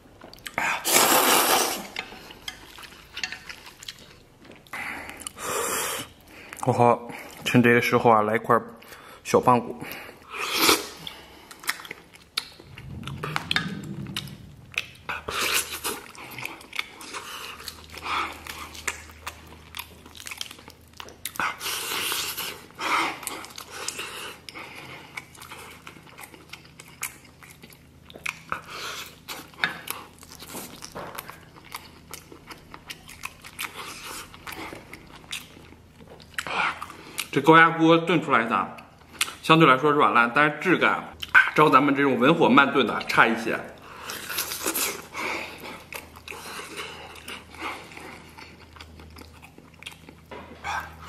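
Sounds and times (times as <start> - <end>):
person biting and chewing meat: 43.8 - 51.0.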